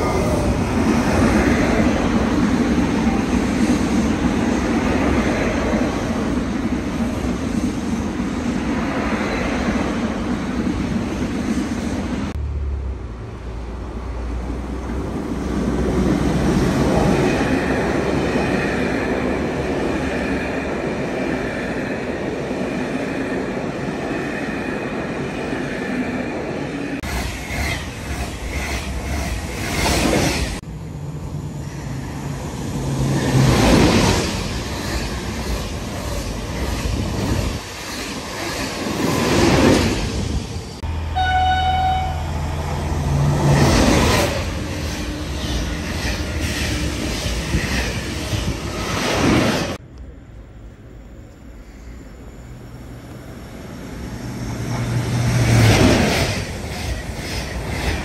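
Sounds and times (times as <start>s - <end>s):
high train whine: 0.0s - 58.0s
train wheels rumbling on rails: 13.4s - 58.0s.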